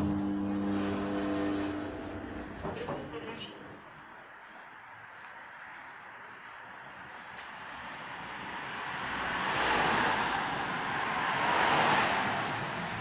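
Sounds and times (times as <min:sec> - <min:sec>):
vehicle passing with rushing noise: 0:00.0 - 0:02.7, 0:07.5 - 0:13.0.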